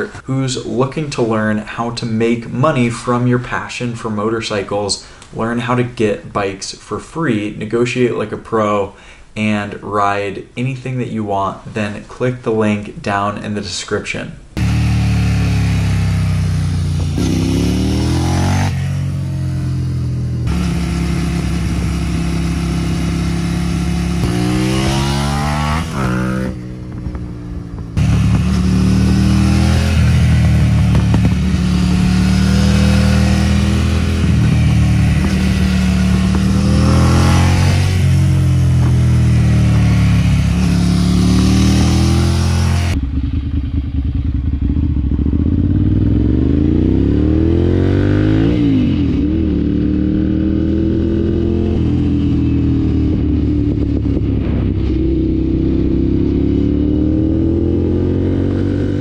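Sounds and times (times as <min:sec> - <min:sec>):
motorcycle engine revving and accelerating: 0:14.6 - 0:59.0.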